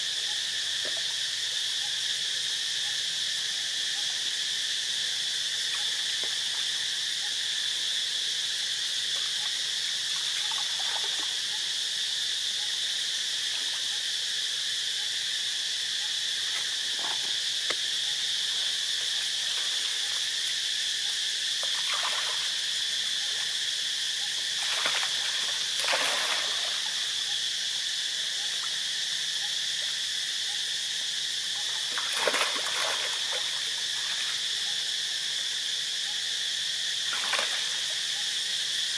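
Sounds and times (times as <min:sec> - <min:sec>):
high-pitched insect chorus: 0:00.0 - 0:38.9
water splashes: 0:21.6 - 0:22.6, 0:24.5 - 0:27.1, 0:31.7 - 0:34.4, 0:37.1 - 0:37.9.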